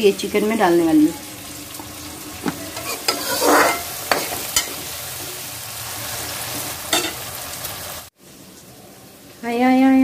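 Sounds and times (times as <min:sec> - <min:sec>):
vegetables sizzling in oil: 0:00.0 - 0:10.0
spatula scraping and knocking pan: 0:01.8 - 0:05.4.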